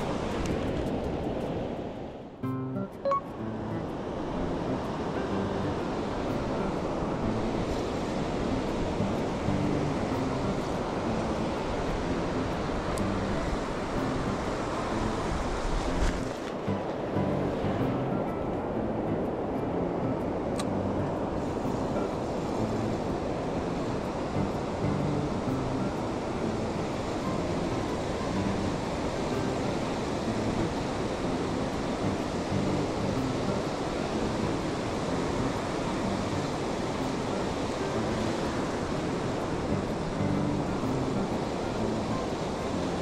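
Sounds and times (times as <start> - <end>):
ocean surf washing over sand: 0.0 - 2.4, 3.0 - 43.0
wind on microphone: 0.0 - 2.4, 3.4 - 43.0
surf breaking on beach: 4.1 - 18.2.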